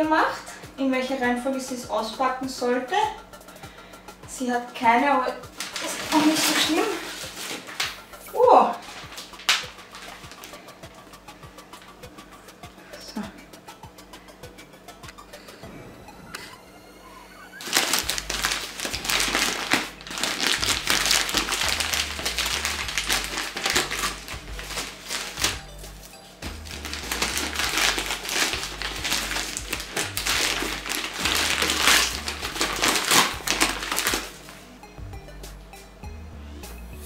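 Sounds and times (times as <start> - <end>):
background music: 0.0 - 37.0
wrapping paper crinkling: 5.5 - 10.7, 17.6 - 34.7.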